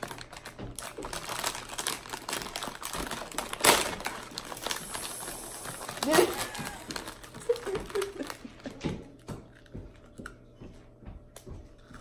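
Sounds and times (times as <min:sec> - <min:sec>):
packaging snapping: 0:00.0 - 0:08.5
cookie packaging crinkling: 0:00.0 - 0:10.2.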